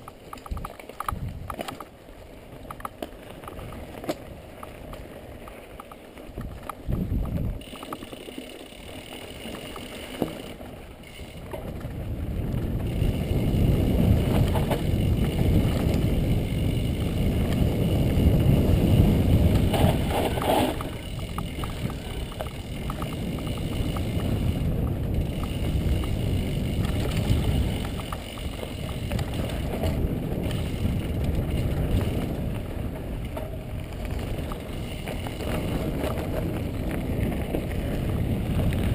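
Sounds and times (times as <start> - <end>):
wind buffeting microphone: 0.0 - 1.7, 6.3 - 7.7, 11.1 - 38.9
bike rattling over ground: 0.0 - 38.9.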